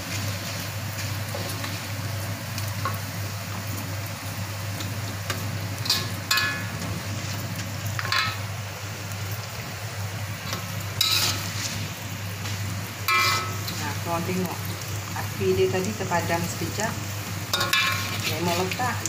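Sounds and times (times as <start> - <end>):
rice sizzling in oil: 0.0 - 19.0
metal spatula scraping wok: 10.5 - 14.0, 17.5 - 18.9.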